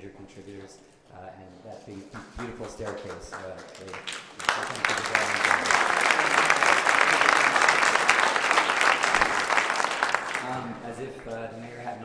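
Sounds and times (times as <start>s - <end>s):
audience applauding: 2.2s - 10.7s.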